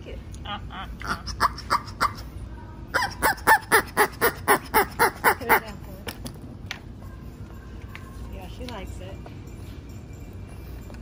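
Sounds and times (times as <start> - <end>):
squeaky dog toy squeaking: 1.0 - 2.3, 2.9 - 5.8.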